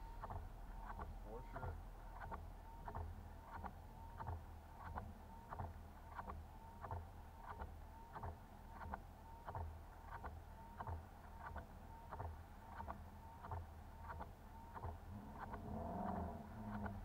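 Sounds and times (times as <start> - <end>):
windshield wipers on wet glass: 12.2 - 17.0.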